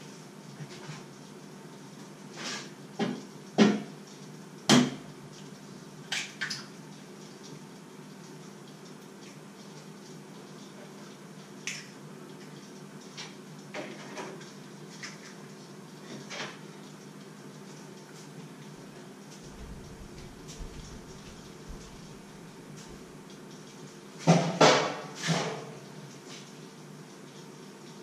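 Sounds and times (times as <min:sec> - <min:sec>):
pots and dishes clattering: 0:13.7 - 0:15.3, 0:24.2 - 0:25.7.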